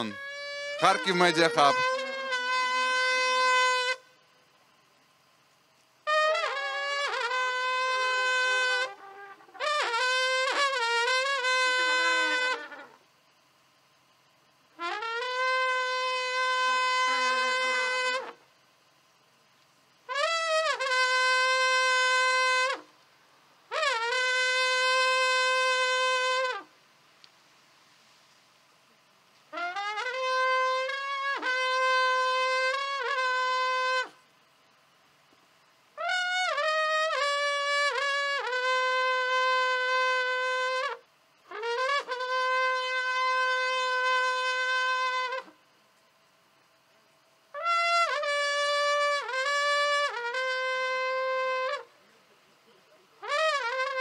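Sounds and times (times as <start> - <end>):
long wooden horn blasts: 0.0 - 4.2, 6.0 - 13.1, 14.7 - 18.5, 20.0 - 23.0, 23.6 - 26.8, 29.5 - 34.4, 35.9 - 45.8, 47.5 - 52.0, 53.1 - 54.0.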